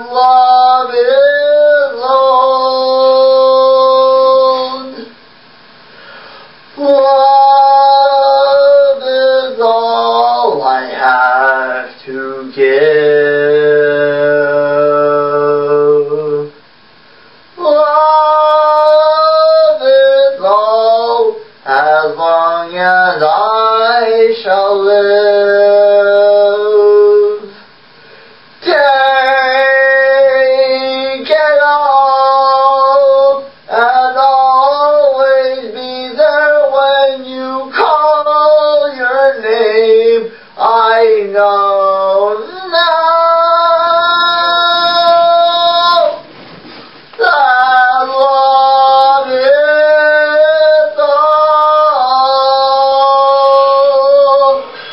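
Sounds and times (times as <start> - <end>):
young man singing solo: 0.0 - 5.2, 6.7 - 16.6, 17.6 - 27.6, 28.6 - 46.3, 47.2 - 54.9
breath intake: 5.8 - 6.7, 54.6 - 54.9.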